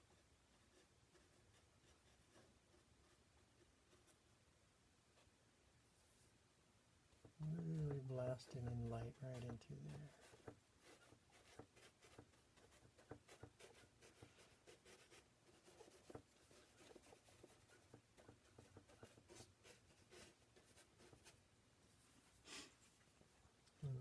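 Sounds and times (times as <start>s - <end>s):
bristle brush scratching paint: 7.5s - 21.4s.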